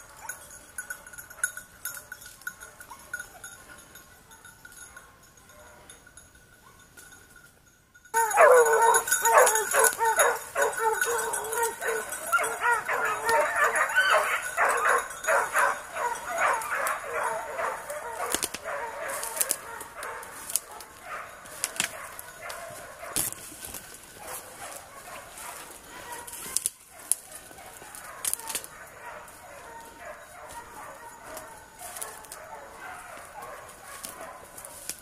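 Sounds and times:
hounds baying: 0.0 - 6.0, 8.1 - 35.0
brush cracking: 17.8 - 35.0.

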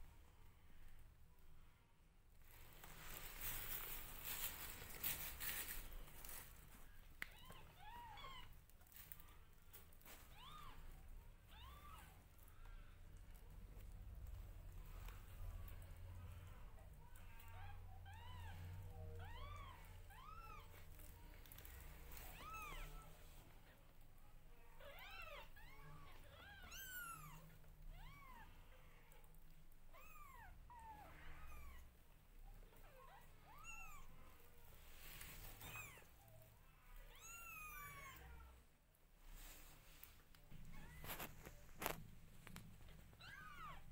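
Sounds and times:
kittens mewing: 7.3 - 34.4.

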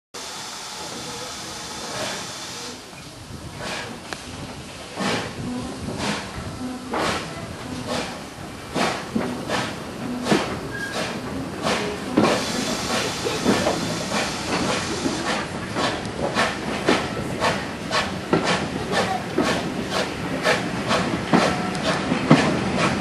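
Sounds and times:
steam hissing: 0.2 - 23.0
steam train rhythmic beats: 6.9 - 23.0
rushing air: 7.0 - 23.0.

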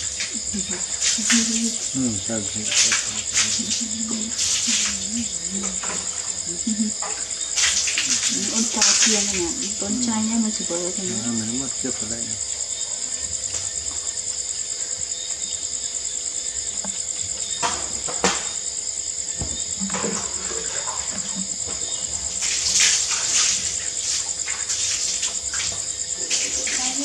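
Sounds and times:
crickets chirping: 0.0 - 27.0
rustle of leaves: 7.5 - 10.3, 22.0 - 27.0.

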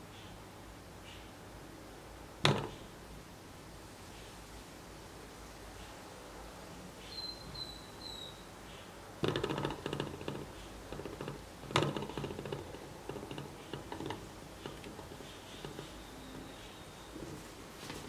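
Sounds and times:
small engine rattling and clicking: 9.2 - 16.5.

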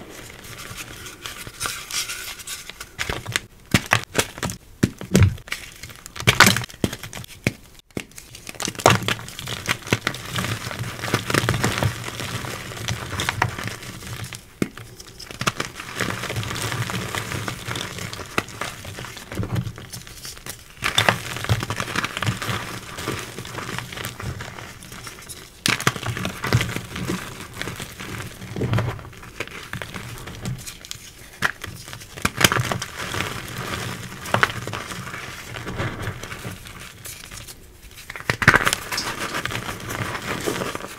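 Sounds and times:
chalk pieces snapping: 37.3 - 39.1.

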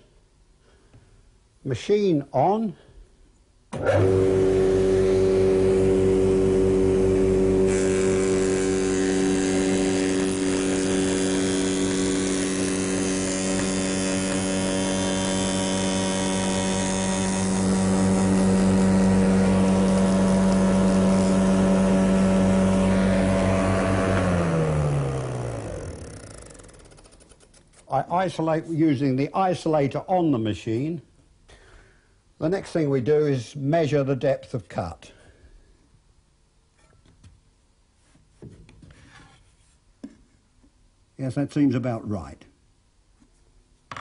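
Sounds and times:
cutter cutting through wood: 3.8 - 26.8
spindle moulder humming: 3.8 - 26.9.

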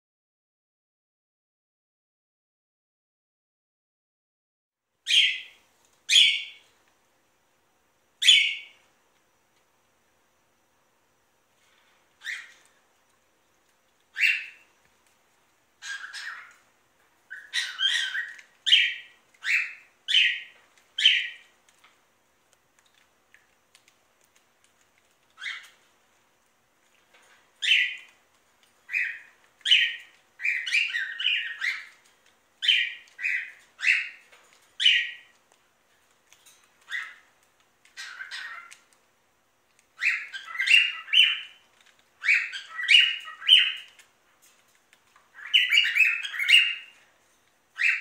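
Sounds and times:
budgerigar chirping: 5.1 - 6.6, 8.2 - 8.8, 12.2 - 12.6, 14.1 - 14.7, 15.8 - 16.6, 17.3 - 21.5, 25.4 - 25.8, 27.6 - 28.1, 28.9 - 32.0, 32.6 - 34.2, 34.8 - 35.3, 36.9 - 37.2, 38.0 - 38.8, 40.0 - 41.6, 42.2 - 43.9, 45.4 - 47.0, 47.8 - 48.0.

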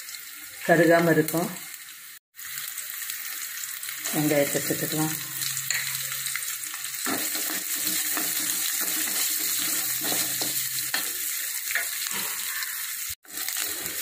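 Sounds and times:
onions sizzling in hot oil: 0.0 - 14.0
wooden spatula scraping pan: 7.1 - 10.7.

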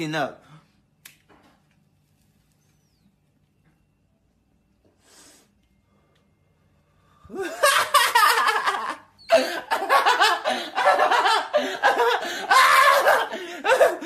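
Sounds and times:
man laughing hard: 7.3 - 14.0.

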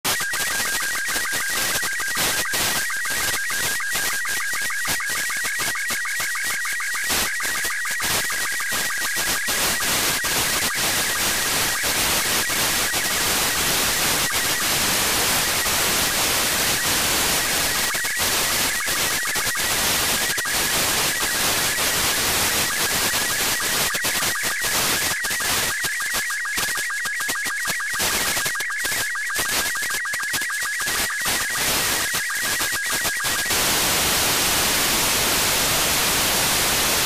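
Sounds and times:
warbling high radio tones: 0.1 - 37.0
radio static: 30.9 - 37.0.

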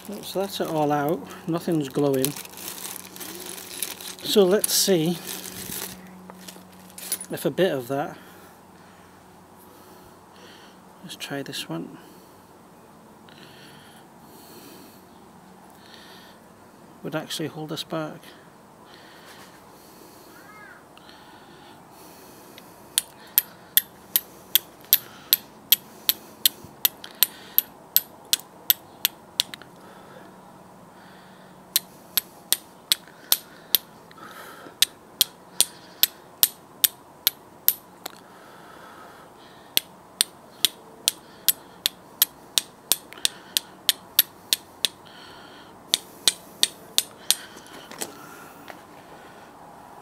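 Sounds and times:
flint and steel striking clicks: 22.6 - 29.7, 31.7 - 33.9, 34.8 - 38.2, 39.8 - 45.0, 45.9 - 47.5.

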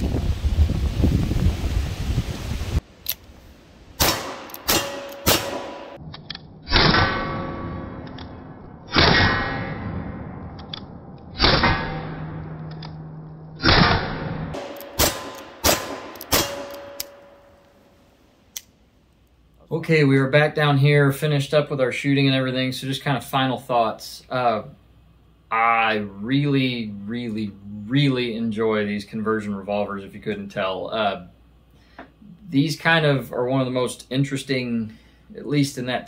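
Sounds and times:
steel plates ringing clang: 4.2 - 6.0, 14.6 - 17.6
revolver shots: 13.6 - 17.6.

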